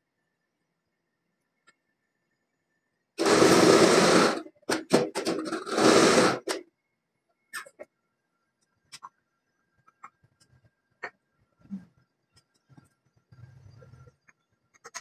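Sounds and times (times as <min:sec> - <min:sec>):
hydraulic press bursts: 0:03.2 - 0:06.6.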